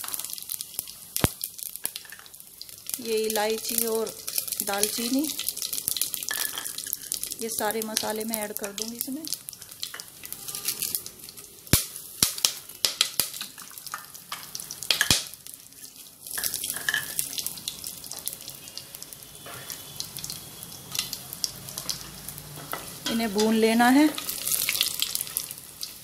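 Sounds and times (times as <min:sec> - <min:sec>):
spices sizzling in hot oil: 0:00.0 - 0:26.0
sharp clicks and pops: 0:01.2 - 0:02.2.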